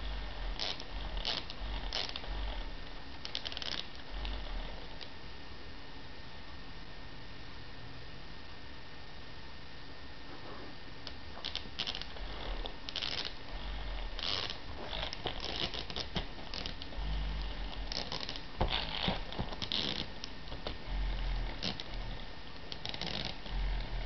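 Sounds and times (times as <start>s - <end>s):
faint steady hiss: 0.0s - 24.0s
dog chewing plush toy: 11.4s - 24.0s.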